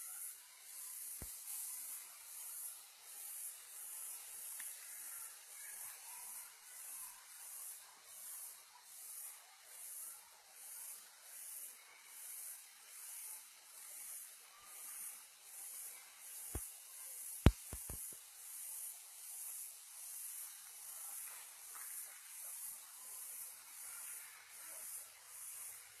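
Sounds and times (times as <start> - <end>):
insect drone pulsing: 0.0 - 25.9.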